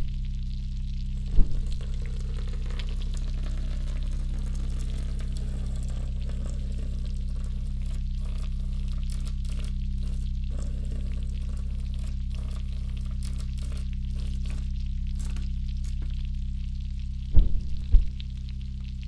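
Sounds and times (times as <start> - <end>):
crackling fizz of tiny clicks: 0.1 - 17.2
single thump: 17.4 - 18.2.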